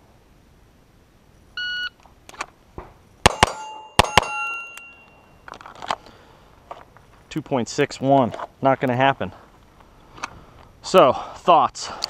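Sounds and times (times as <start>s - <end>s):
pistol shots: 3.2s - 4.7s
steel plates ringing: 3.3s - 5.4s
faint clicks and rustles: 5.0s - 7.3s.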